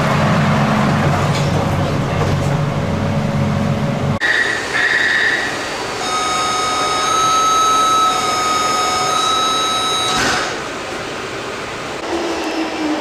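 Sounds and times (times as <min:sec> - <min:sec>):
electronic door warning buzzer: 0:04.2 - 0:10.6.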